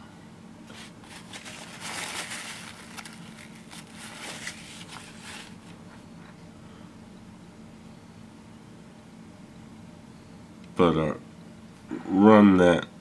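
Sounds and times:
faint rustling handling noise: 0:00.6 - 0:06.4.

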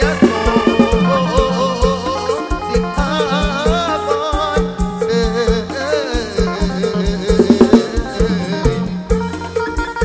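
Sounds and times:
winding lead melody: 0:00.0 - 0:05.6
bass line: 0:00.0 - 0:10.0
drum kit beat: 0:00.0 - 0:10.0.

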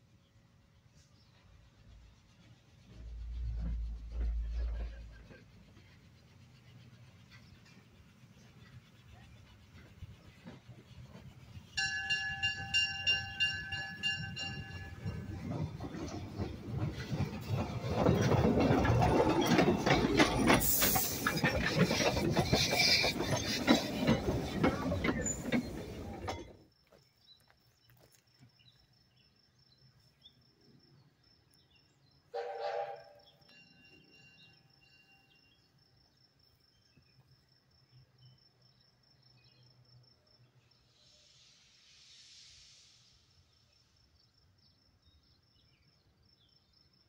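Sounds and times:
wheels clicking on rails: 0:02.8 - 0:27.0
steam locomotive exhaust: 0:32.4 - 0:34.1.

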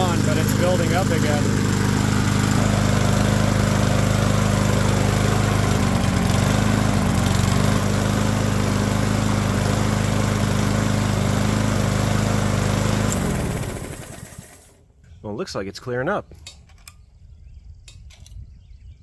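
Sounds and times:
lawn mower engine running: 0:00.0 - 0:14.9.

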